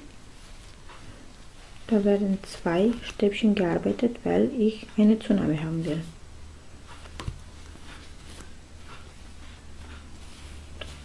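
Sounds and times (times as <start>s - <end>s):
rustling of yarn: 0.0s - 4.0s, 6.8s - 11.0s
steady low hum: 0.0s - 11.0s.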